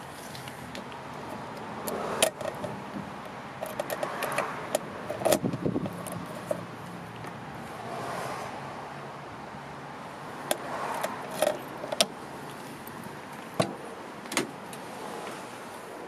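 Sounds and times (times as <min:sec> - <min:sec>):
metal lock clicking: 0:03.6 - 0:06.6.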